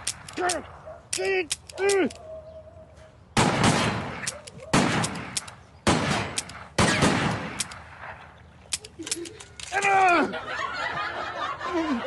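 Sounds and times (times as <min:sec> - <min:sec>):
handgun shots: 0:03.4 - 0:07.9.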